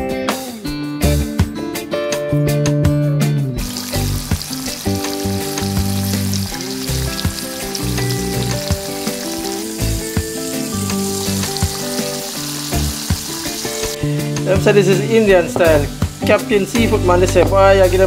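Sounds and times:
background music with held notes: 0:00.0 - 0:18.0
fish deep-frying in hot oil: 0:03.6 - 0:14.0.

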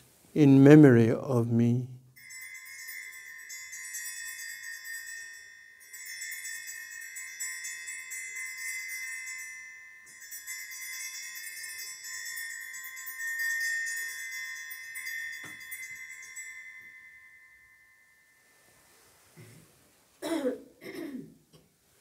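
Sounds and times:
small bells ringing: 0:02.1 - 0:19.3.

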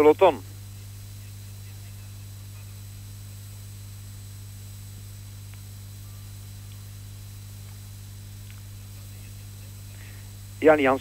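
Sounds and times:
even hiss: 0:00.0 - 0:11.0
low electrical hum: 0:00.0 - 0:11.0.

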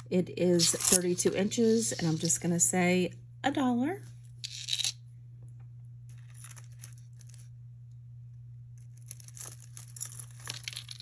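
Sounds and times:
steady low hum: 0:00.0 - 0:11.0
jewelry and chains clicking: 0:09.1 - 0:11.0.

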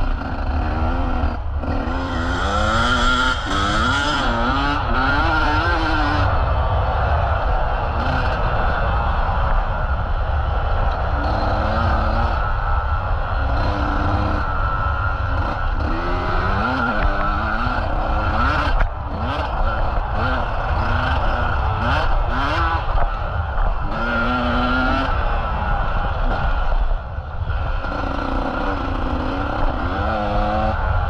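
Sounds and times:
motocross bike engine revving: 0:00.0 - 0:06.4, 0:07.9 - 0:08.7, 0:11.0 - 0:12.7, 0:13.3 - 0:31.0.

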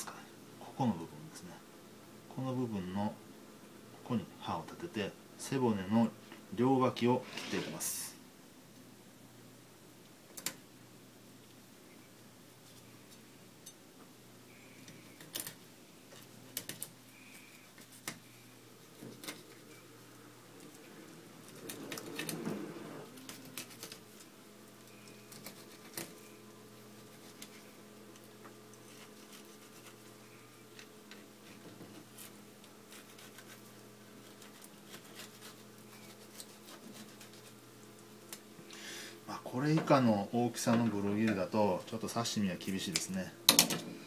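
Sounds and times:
low steady hum: 0:00.0 - 0:44.0
knife scraping along fish: 0:23.1 - 0:24.0, 0:25.2 - 0:26.2, 0:28.8 - 0:30.1, 0:32.2 - 0:37.6.

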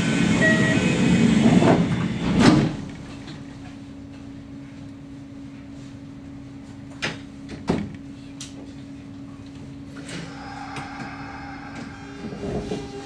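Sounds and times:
train steady hum: 0:00.0 - 0:07.3, 0:07.9 - 0:13.0
traction motors whining: 0:10.0 - 0:13.0.

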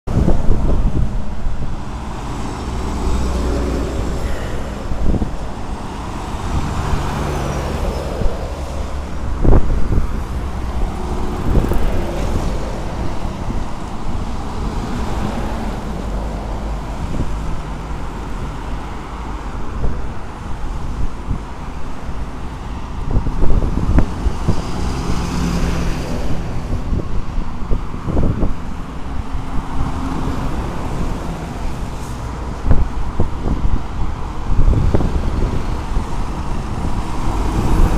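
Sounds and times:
traffic passing on highway: 0:00.1 - 0:37.9.

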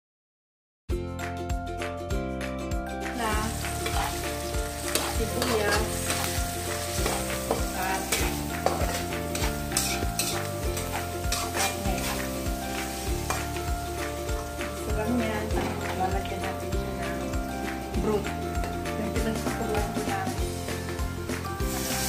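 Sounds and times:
onions and meat sizzling in oil: 0:03.0 - 0:22.0
wooden spatula scraping wok: 0:03.2 - 0:17.1.

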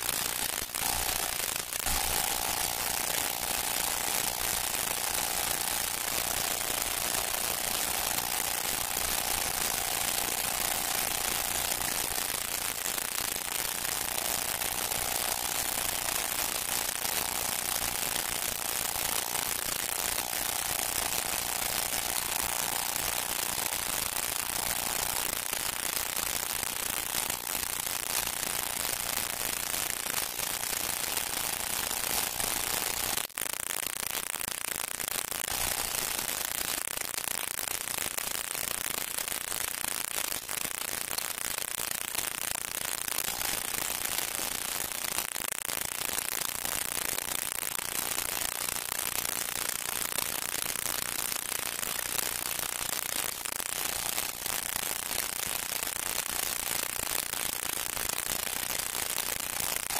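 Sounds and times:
old film soundtrack hiss and crackle: 0:00.0 - 0:59.9.

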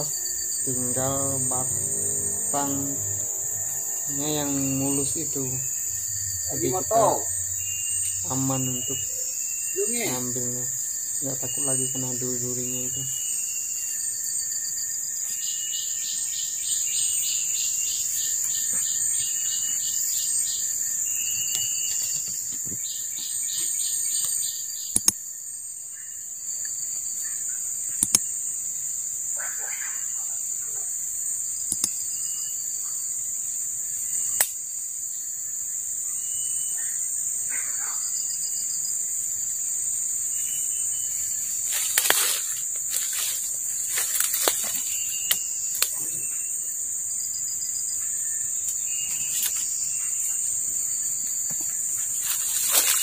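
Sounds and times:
high-pitched insect drone: 0:00.0 - 0:53.0
rapid pulsing insect call: 0:00.0 - 0:53.0
sharp clicks: 0:24.9 - 0:25.2, 0:28.0 - 0:28.3, 0:31.6 - 0:32.0, 0:34.4 - 0:34.6
leaves rustling: 0:40.9 - 0:46.2, 0:48.6 - 0:53.0.

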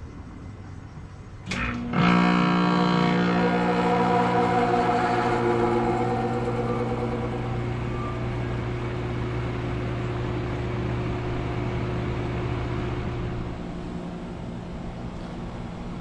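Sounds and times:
heat pump unit humming: 0:01.4 - 0:16.0
guitar music: 0:02.0 - 0:08.7.

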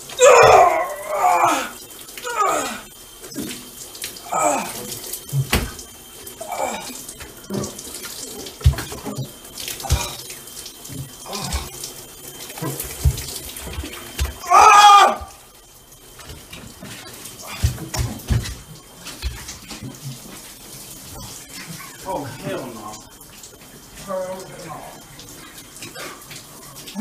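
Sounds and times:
shower water running into bathtub: 0:00.0 - 0:27.0
short cries and yell: 0:14.4 - 0:15.4.

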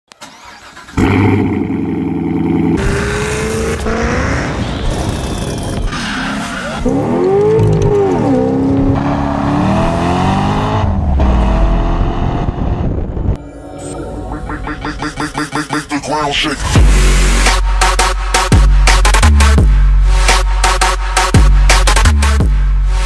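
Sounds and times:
car engine revving hard: 0:00.9 - 0:13.0.

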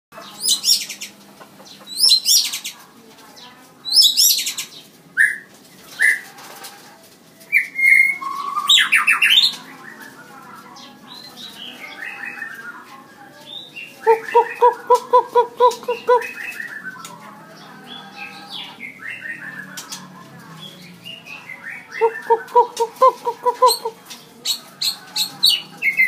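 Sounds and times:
bird singing whistled notes: 0:07.5 - 0:10.1.

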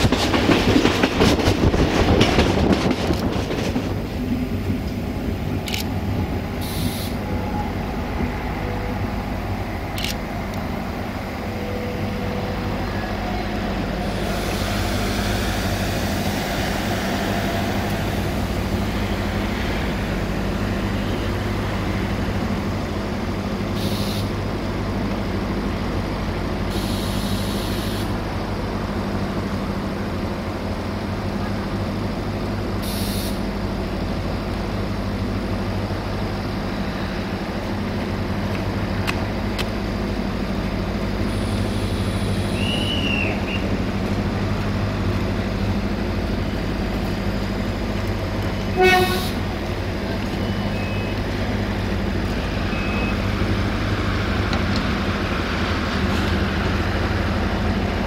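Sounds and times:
railcar engine drone: 0:00.0 - 0:58.0
short hisses: 0:06.6 - 0:07.3.

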